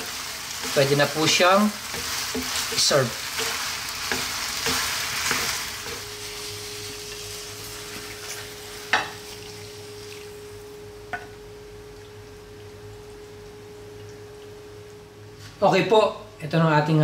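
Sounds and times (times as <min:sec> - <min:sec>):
wooden spoons stirring: 0:00.0 - 0:09.6
pasta sizzling in a pan: 0:00.0 - 0:14.7.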